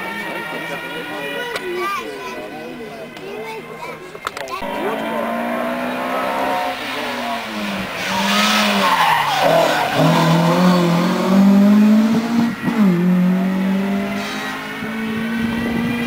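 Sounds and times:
rally car engine revving: 0:04.6 - 0:16.0.

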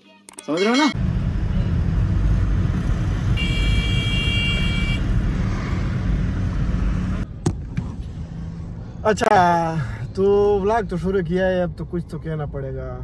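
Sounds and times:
car road and engine rumble: 0:00.9 - 0:13.0
car horn: 0:03.2 - 0:05.2.

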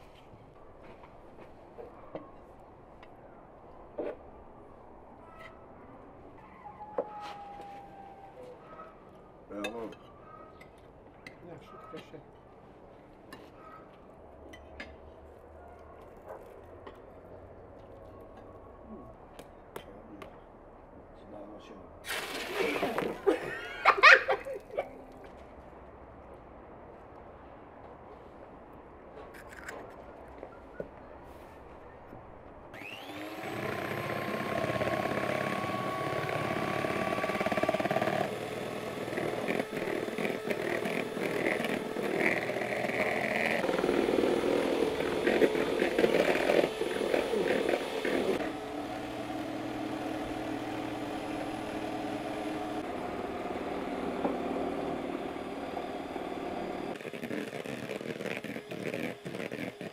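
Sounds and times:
electric hand mixer whirring: 0:32.8 - 0:59.9
beaters whisking in a bowl: 0:57.0 - 0:59.9.

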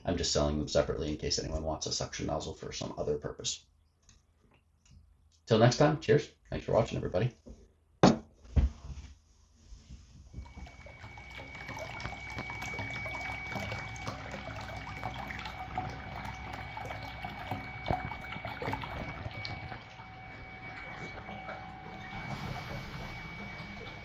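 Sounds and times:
electric pump whine: 0:10.4 - 0:24.0
water churning and splashing: 0:10.4 - 0:24.0.

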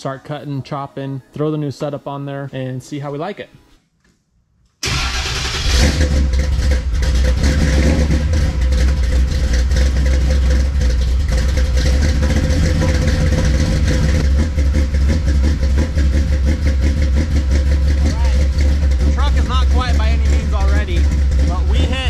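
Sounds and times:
pickup truck engine running loud: 0:04.9 - 0:22.0.

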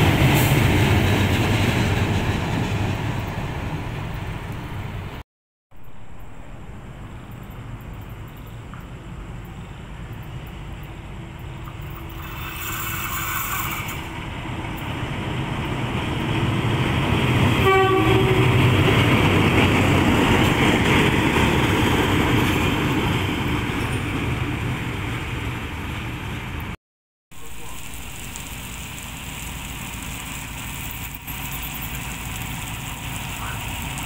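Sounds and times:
locomotive and wagons rumbling: 0:00.0 - 0:05.2, 0:05.8 - 0:26.8, 0:27.4 - 0:34.0
locomotive horn: 0:17.6 - 0:18.7.

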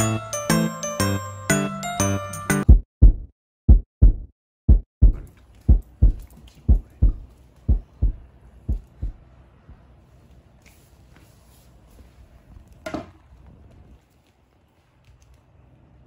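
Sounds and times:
heartbeat thumps: 0:02.7 - 0:09.2.

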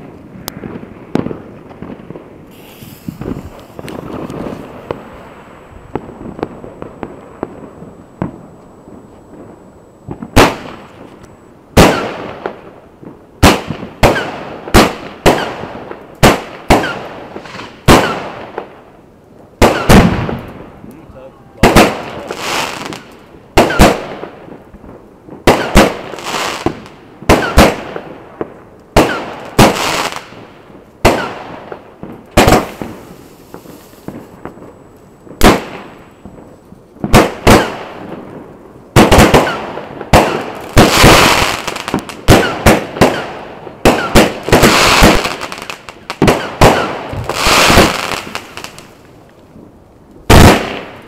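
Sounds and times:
firework bangs: 0:00.0 - 0:19.0, 0:19.6 - 0:51.0.

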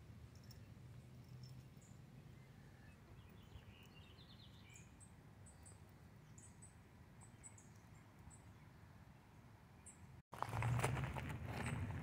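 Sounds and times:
faint high bird chirps: 0:00.4 - 0:08.8.

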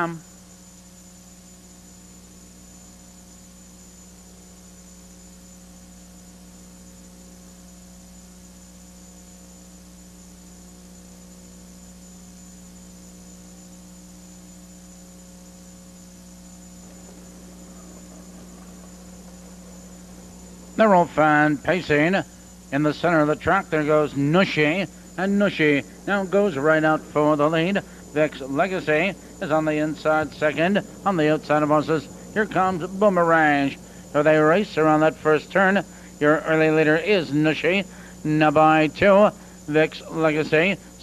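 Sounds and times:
electrical mains hum: 0:00.0 - 0:41.0
faint hiss: 0:16.2 - 0:41.0.

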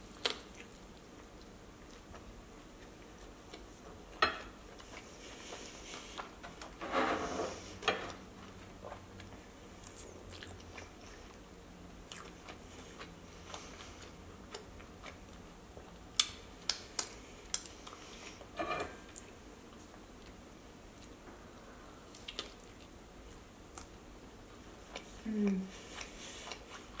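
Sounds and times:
person chewing food: 0:08.1 - 0:21.2, 0:22.1 - 0:27.0.

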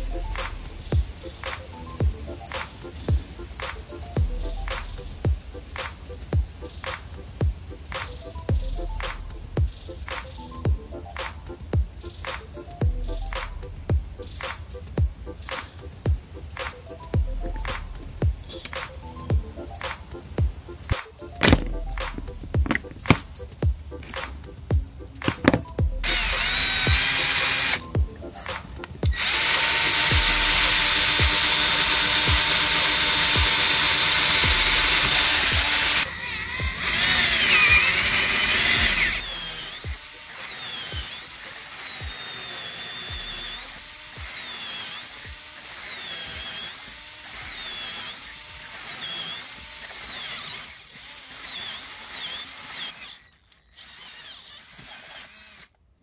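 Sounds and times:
background music with beat: 0:00.0 - 0:31.5, 0:32.3 - 0:32.6, 0:33.3 - 0:37.9
drill press cutting wood: 0:20.9 - 0:23.4, 0:25.2 - 0:55.8.

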